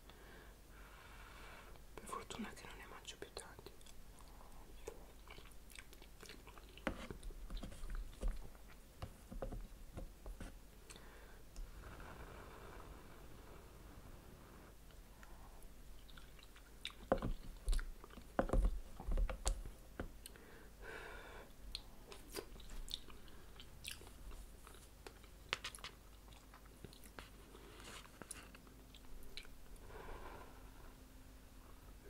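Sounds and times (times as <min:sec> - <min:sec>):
person chewing noodles: 0:03.8 - 0:08.4, 0:16.0 - 0:18.3, 0:21.7 - 0:27.3, 0:28.2 - 0:29.6.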